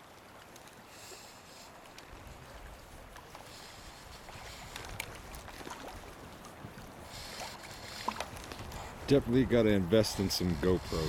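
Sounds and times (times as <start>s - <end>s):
river current rippling: 0.0s - 11.0s
wind buffeting microphone: 3.8s - 11.0s
small splashes: 4.3s - 8.8s.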